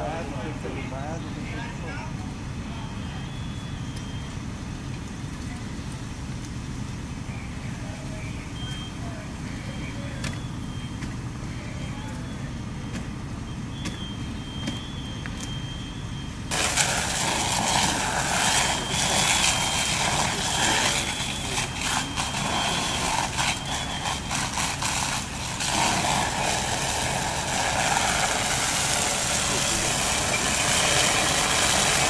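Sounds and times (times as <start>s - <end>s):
diesel engine rumbling: 0.0s - 32.0s
crackles: 0.6s - 32.0s
loud rushing hiss: 16.5s - 32.0s.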